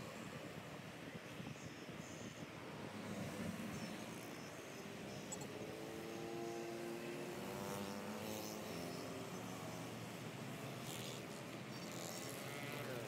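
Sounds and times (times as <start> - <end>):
passing cars and motorbikes: 2.1 - 13.0.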